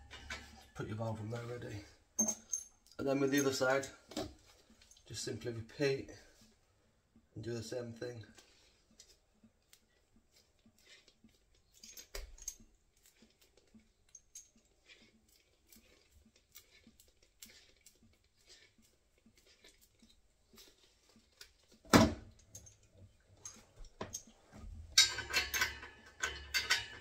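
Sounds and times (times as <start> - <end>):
faint clicks and rustles: 0.0 - 27.0.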